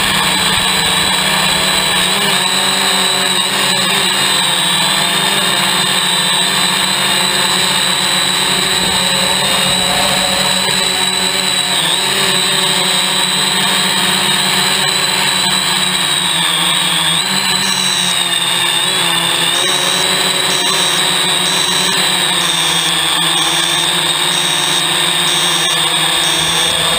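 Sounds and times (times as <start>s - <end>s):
drone propellers whining: 0.0s - 26.9s
faint high beep: 6.8s - 12.5s, 19.5s - 26.9s.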